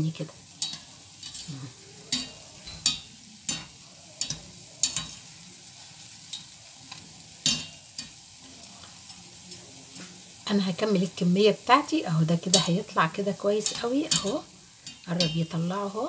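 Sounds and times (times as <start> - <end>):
dough frying in oil: 0.0 - 16.0
metal spoon clicking on pan: 0.6 - 1.5, 2.1 - 5.3, 6.2 - 10.1, 12.5 - 12.8, 13.6 - 16.0.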